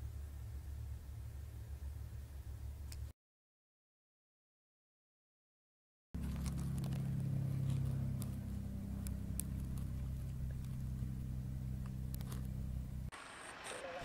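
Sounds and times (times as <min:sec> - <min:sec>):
propeller plane engine droning: 0:00.0 - 0:03.1, 0:06.2 - 0:13.1.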